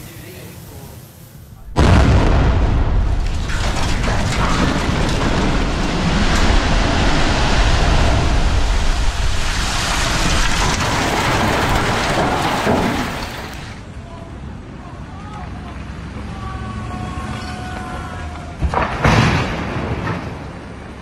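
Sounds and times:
concrete tower collapsing: 1.7 - 13.8, 18.6 - 21.0.

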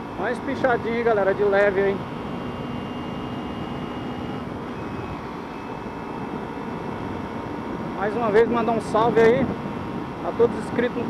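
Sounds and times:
motorcycle engine at speed: 0.0 - 11.0
wind rush on microphone: 3.2 - 11.0.

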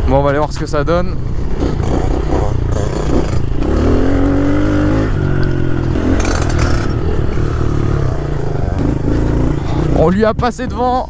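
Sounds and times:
dirt bike engine revving: 1.4 - 10.2.

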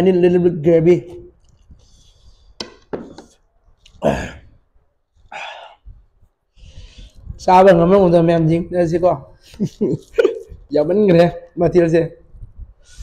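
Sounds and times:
man eating with hands: 3.8 - 4.1.

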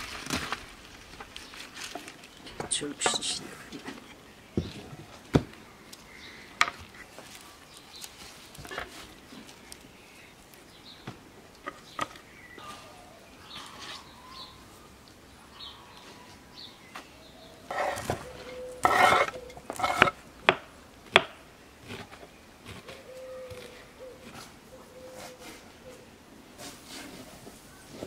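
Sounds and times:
rustling of herbs: 0.0 - 11.0.

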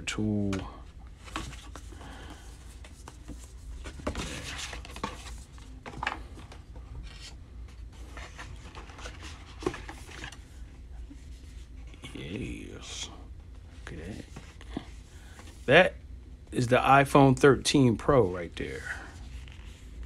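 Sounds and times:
paper and cardboard rustling: 1.2 - 13.0.

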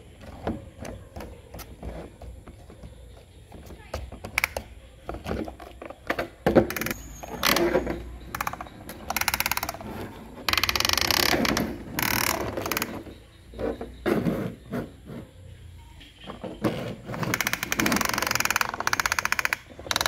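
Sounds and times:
plastic toy parts knocking: 3.5 - 9.8, 16.3 - 20.0
toy wheels clicking rattle: 6.6 - 13.3, 17.0 - 20.0.

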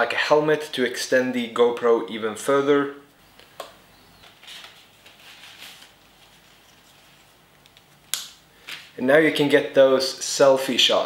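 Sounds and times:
helmet scuffs and rustles: 4.2 - 8.0.

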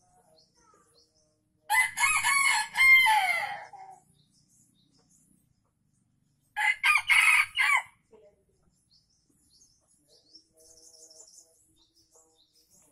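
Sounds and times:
rooster crowing: 1.7 - 3.7, 6.6 - 7.9.

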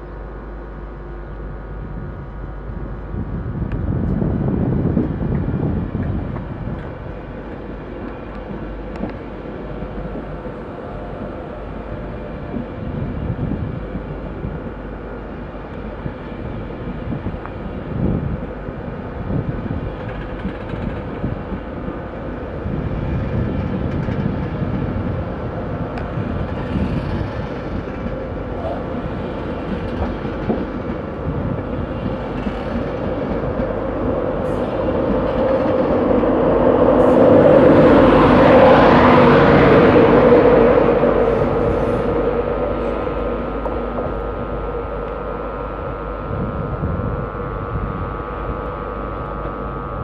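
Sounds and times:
train wheels rumbling on rail: 0.0 - 50.0
faint steady whine: 38.9 - 50.0.

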